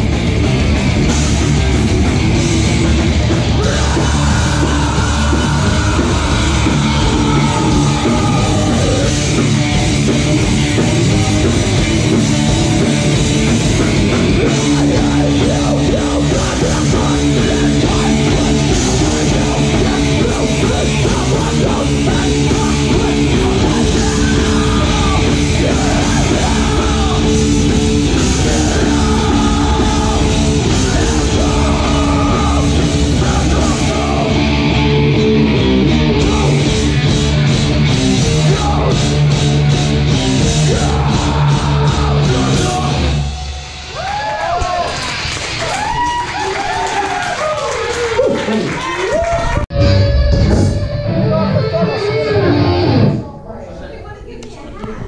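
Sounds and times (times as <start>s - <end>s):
metalcore band playing: 0.0s - 46.0s, 49.7s - 53.5s
screamed vocals: 3.4s - 9.6s, 14.4s - 36.7s, 40.5s - 50.1s.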